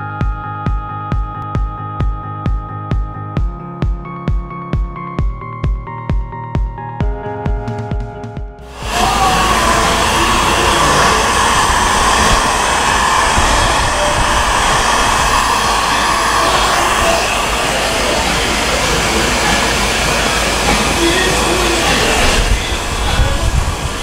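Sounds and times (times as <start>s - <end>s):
heat gun fan hissing: 8.7s - 24.0s.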